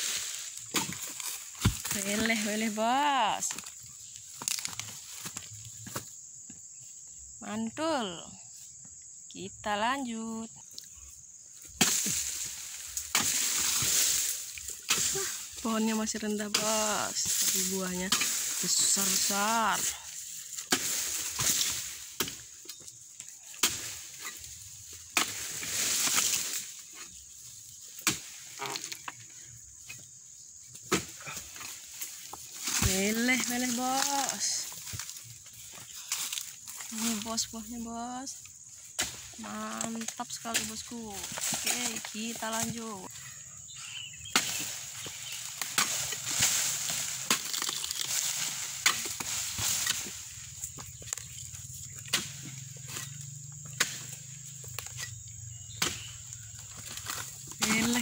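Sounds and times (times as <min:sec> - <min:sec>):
chisel chopping palm frond: 0:11.8 - 0:15.4, 0:20.5 - 0:22.5, 0:23.5 - 0:24.4, 0:25.1 - 0:26.7, 0:28.0 - 0:29.0, 0:44.3 - 0:50.3, 0:52.0 - 0:55.0, 0:55.7 - 0:58.0
fibre and fronds rustling: 0:11.8 - 0:22.7, 0:31.2 - 0:38.3, 0:44.4 - 0:53.1, 0:56.4 - 0:58.0.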